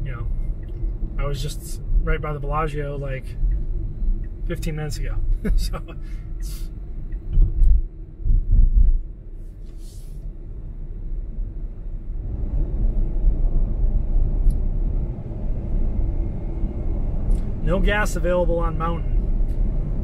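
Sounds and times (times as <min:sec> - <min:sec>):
road and tyre rumble: 0:00.0 - 0:20.0
low thumps: 0:07.1 - 0:09.2.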